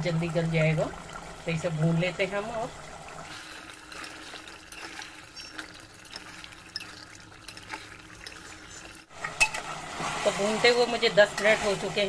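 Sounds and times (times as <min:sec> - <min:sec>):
stew bubbling and popping: 0:00.0 - 0:10.0
steady frying hiss: 0:00.0 - 0:12.0
ladle stirring pot: 0:03.3 - 0:12.0.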